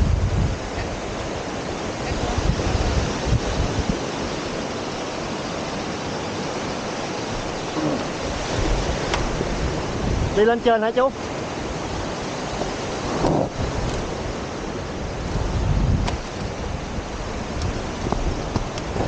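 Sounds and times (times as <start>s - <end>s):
surf breaking on beach: 0.0s - 19.0s
wind buffeting microphone: 0.0s - 19.0s.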